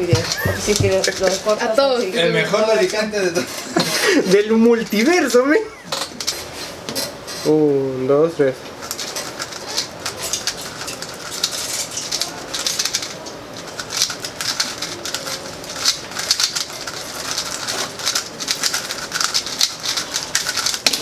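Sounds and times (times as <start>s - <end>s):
puzzle cube plastic clicks: 8.9s - 21.0s.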